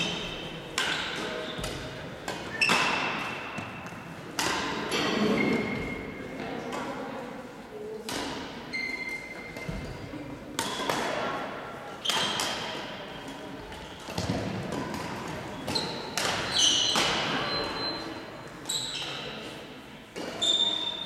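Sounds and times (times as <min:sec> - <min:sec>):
shoes squeaking on court floor: 0:00.0 - 0:04.0, 0:04.9 - 0:06.3, 0:08.7 - 0:10.0, 0:12.0 - 0:14.3, 0:15.5 - 0:21.0
rackets striking shuttlecocks: 0:00.0 - 0:06.1, 0:08.0 - 0:09.9, 0:10.5 - 0:17.5, 0:20.1 - 0:21.0.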